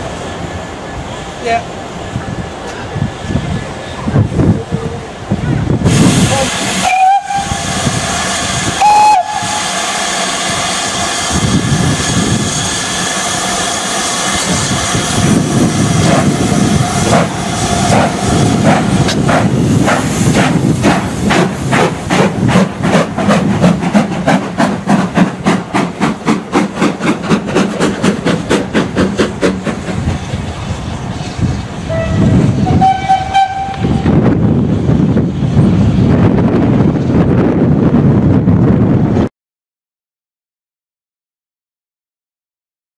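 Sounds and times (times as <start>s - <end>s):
steam hissing: 5.8s - 32.9s
steam locomotive whistle: 6.2s - 13.5s, 31.9s - 34.1s.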